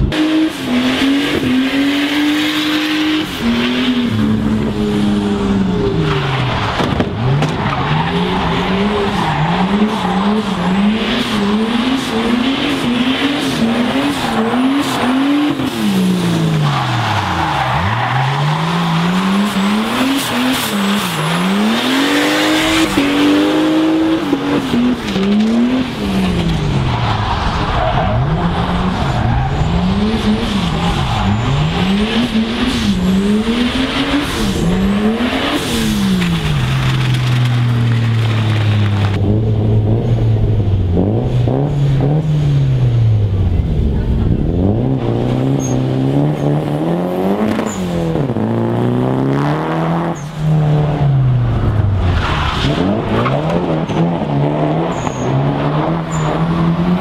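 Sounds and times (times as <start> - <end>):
car engine revving hard: 0.0 - 7.5, 8.1 - 26.6, 44.2 - 51.3, 52.1 - 57.0.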